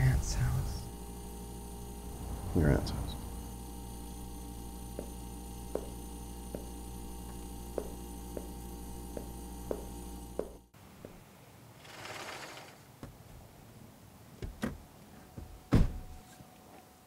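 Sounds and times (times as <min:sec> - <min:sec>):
electrical mains hum: 0:00.0 - 0:17.0
footsteps on a hard floor: 0:04.9 - 0:08.5, 0:09.2 - 0:11.2.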